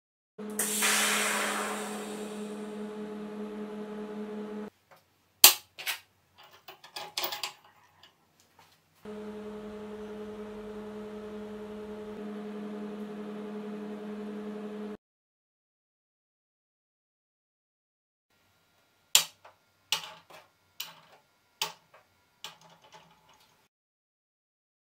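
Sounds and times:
welding machine hum with hiss: 0:00.4 - 0:04.7, 0:09.1 - 0:15.0.

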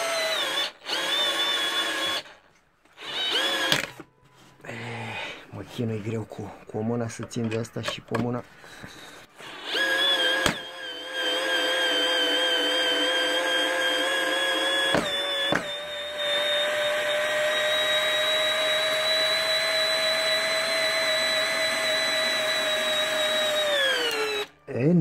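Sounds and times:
cordless drill whining: 0:00.0 - 0:04.0, 0:09.3 - 0:24.6.

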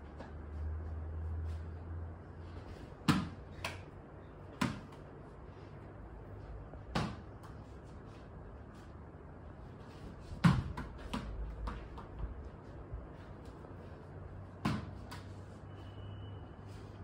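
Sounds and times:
ball knocking off floor and walls: 0:03.0 - 0:03.8, 0:06.9 - 0:07.5, 0:10.4 - 0:12.3, 0:14.6 - 0:15.4.

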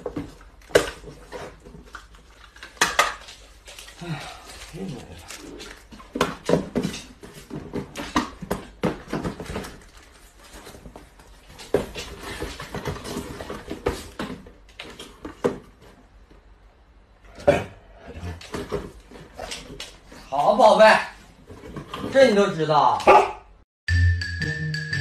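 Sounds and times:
cardboard boxes knocking and rustling: 0:00.0 - 0:02.2, 0:05.6 - 0:16.2, 0:18.3 - 0:19.8, 0:21.3 - 0:22.3.

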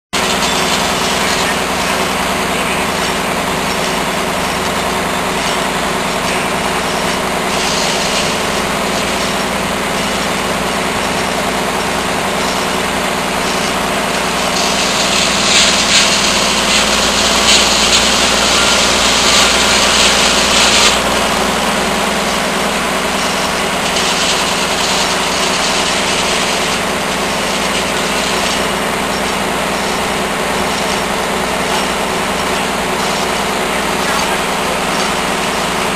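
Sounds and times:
diesel engine running: 0:00.2 - 0:35.9
saw blade cutting wood: 0:00.2 - 0:35.9.

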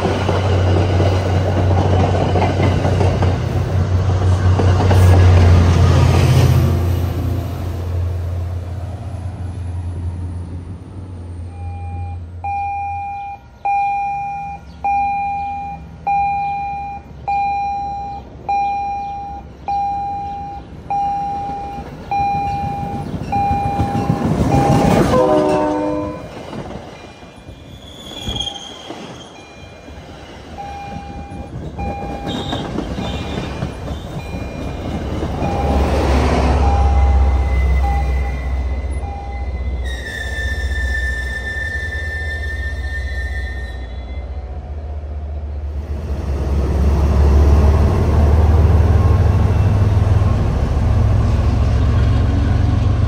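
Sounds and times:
train wheels rolling: 0:00.0 - 0:07.0, 0:20.9 - 0:44.0
diesel locomotive engine rumble: 0:00.0 - 0:53.0
train bell ringing: 0:11.5 - 0:27.4, 0:29.3 - 0:30.0, 0:30.6 - 0:39.9
train horn tones: 0:23.8 - 0:26.3.

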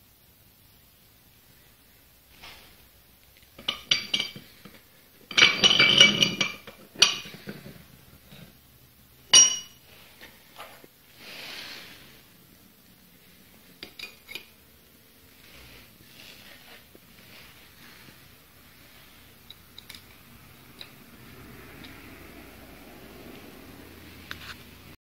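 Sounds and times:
vise handle clanking: 0:03.6 - 0:04.4, 0:05.3 - 0:07.5, 0:09.3 - 0:09.8
metal vise parts clinking: 0:03.6 - 0:07.7, 0:09.3 - 0:09.8, 0:13.8 - 0:14.6, 0:19.4 - 0:21.0.

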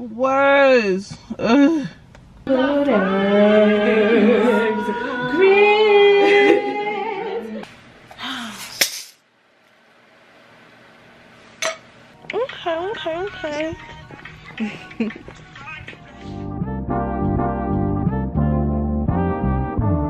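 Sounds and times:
person singing with vibrato: 0:02.5 - 0:07.6, 0:12.3 - 0:16.5.

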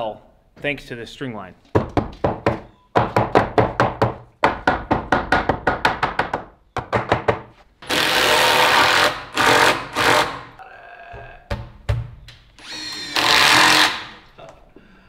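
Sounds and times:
impact driver driving screws into wood: 0:07.8 - 0:10.5, 0:12.6 - 0:14.2.

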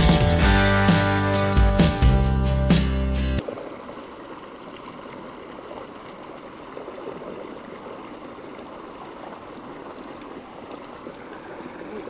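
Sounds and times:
stream babbling over rocks: 0:03.4 - 0:12.0.

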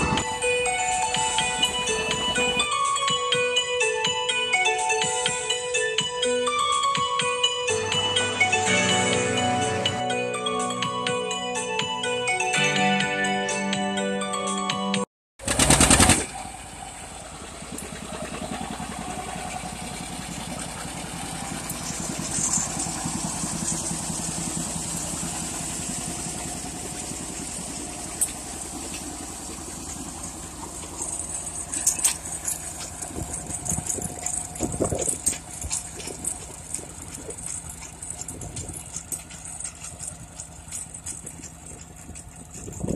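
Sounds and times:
tractor engine running: 0:00.0 - 0:12.2, 0:15.4 - 0:42.9
binder mechanism clattering: 0:27.9 - 0:42.9.

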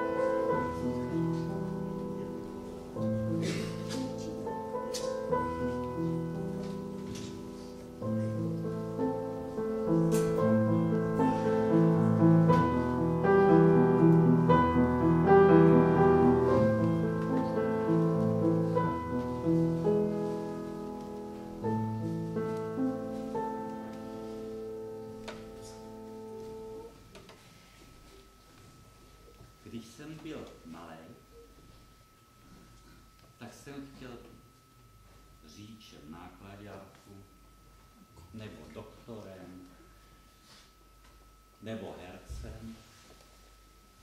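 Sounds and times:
solo piano music: 0:00.0 - 0:27.1.

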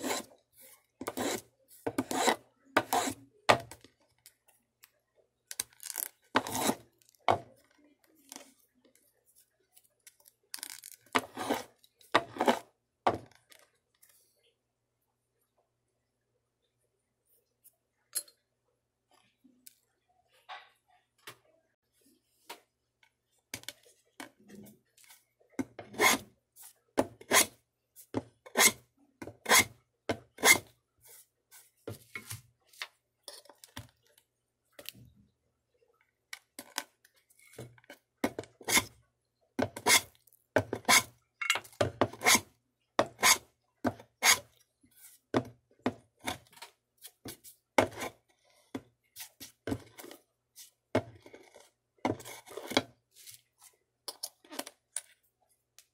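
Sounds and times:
hand tool scraping wood: 0:00.0 - 0:00.3, 0:01.0 - 0:03.2, 0:06.4 - 0:06.8, 0:11.2 - 0:12.6.

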